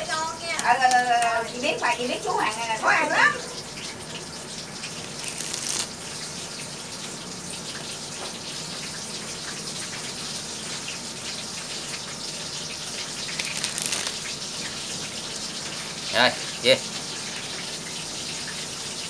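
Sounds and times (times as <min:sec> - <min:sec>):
playing cards rustling and clicking: 0:05.0 - 0:06.0, 0:13.2 - 0:14.4.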